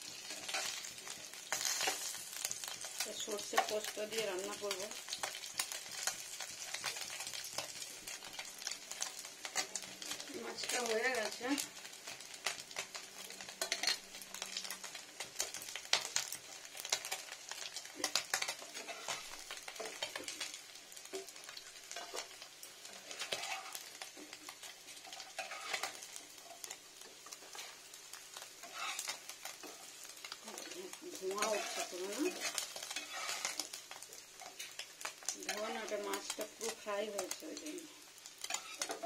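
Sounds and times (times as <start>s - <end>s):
fish sizzling in oil: 0.0s - 39.0s
spatula scraping pan: 0.2s - 3.8s, 16.9s - 20.5s, 21.1s - 37.4s, 38.3s - 39.0s.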